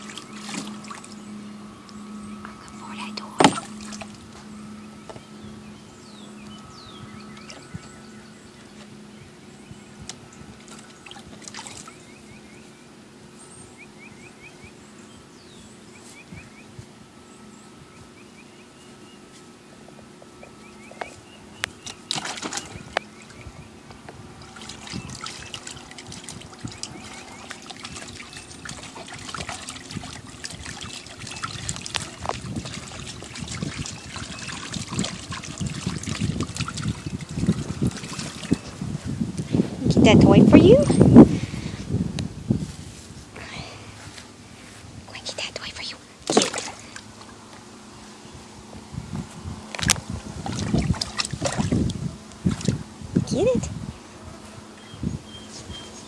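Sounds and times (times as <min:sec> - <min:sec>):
dog splashing in water: 0:00.0 - 0:01.2, 0:10.6 - 0:12.0, 0:21.8 - 0:22.8, 0:24.5 - 0:38.7, 0:46.2 - 0:47.0, 0:50.4 - 0:52.8
steady low hum: 0:00.0 - 0:56.0.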